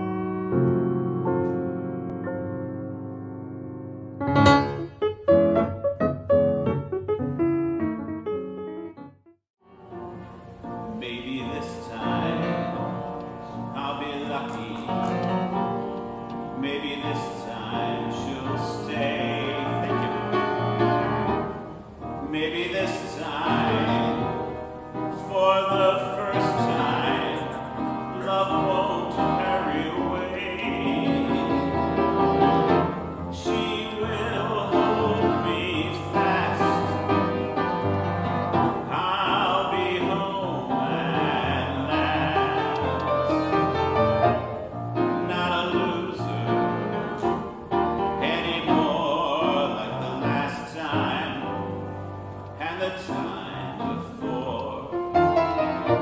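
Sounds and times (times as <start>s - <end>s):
piano accompaniment: 0.0s - 56.0s
man singing: 9.8s - 37.8s, 38.4s - 52.0s, 52.6s - 56.0s.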